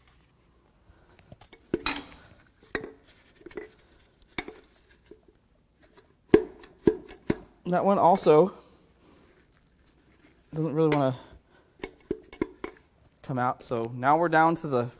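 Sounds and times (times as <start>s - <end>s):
metal clinks and knocks: 1.7s - 2.2s.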